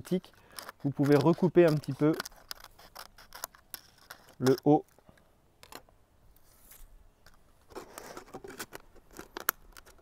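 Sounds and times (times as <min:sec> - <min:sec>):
plastic crackling and clicking: 0:00.0 - 0:05.0, 0:07.2 - 0:10.0.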